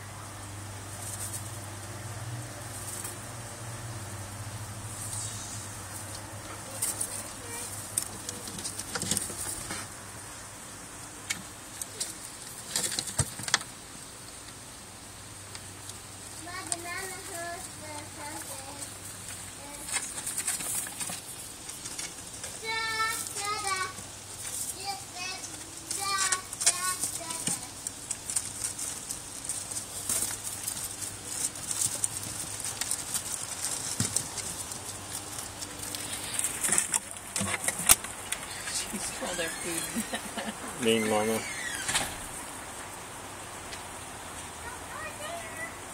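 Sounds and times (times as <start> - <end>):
rabbits rustling in straw: 0.0 - 45.9
child's voice: 6.5 - 7.8, 16.4 - 18.9, 19.6 - 20.0, 22.6 - 24.0, 24.7 - 27.8, 44.6 - 45.9.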